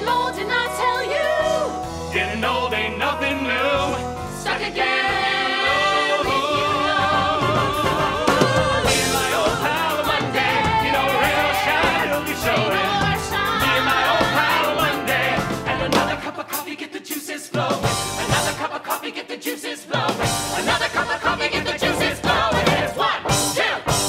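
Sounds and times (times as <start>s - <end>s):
instrumental accompaniment: 1.5s - 16.7s
cast singing show tune: 2.1s - 24.0s.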